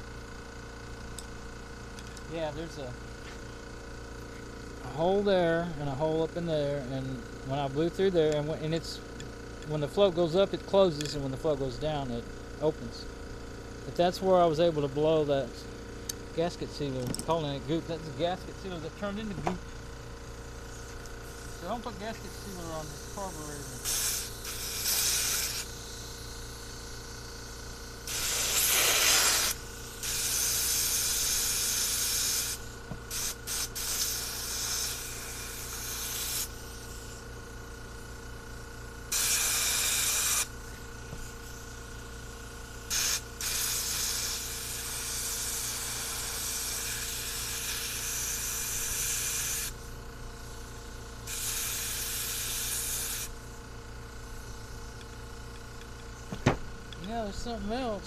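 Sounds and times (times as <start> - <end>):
hissing spray bursts: 20.7 - 37.2, 39.1 - 41.8, 42.9 - 50.5, 51.2 - 53.5.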